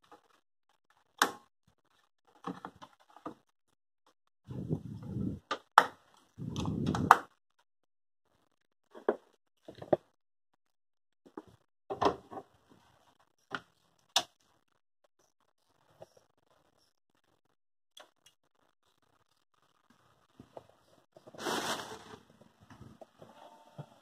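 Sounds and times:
hands rubbing and rustling: 21.2 - 22.2.

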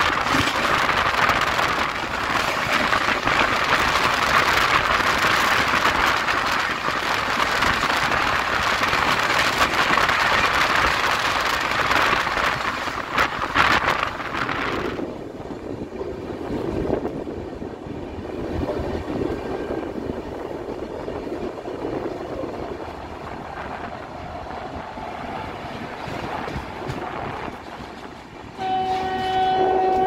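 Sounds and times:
train wheels rushing on rails: 0.0 - 30.0
train wheel clacks: 25.2 - 30.0.

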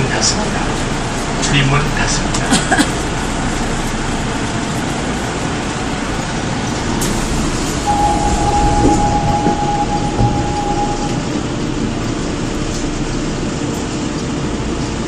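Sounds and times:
electric train wheels rumbling: 0.0 - 15.0
steady high tone: 7.0 - 11.4.

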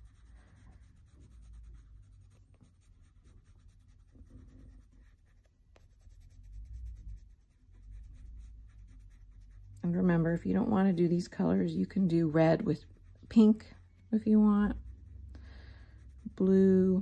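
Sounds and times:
pencil scratching on paper: 0.0 - 17.0.

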